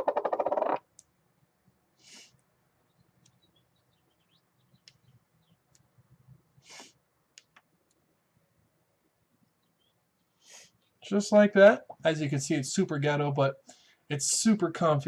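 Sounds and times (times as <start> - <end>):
short soft hiss: 6.6 - 7.0.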